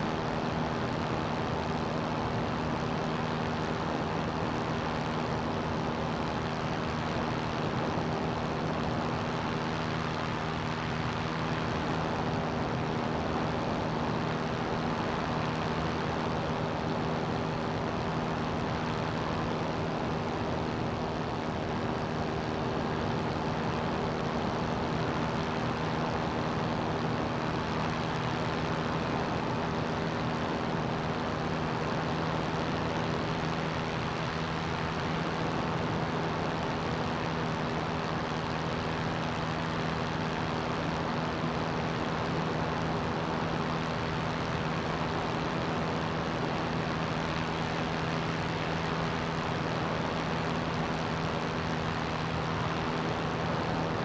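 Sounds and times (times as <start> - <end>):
ultralight engine and propeller drone: 0.0 - 54.0.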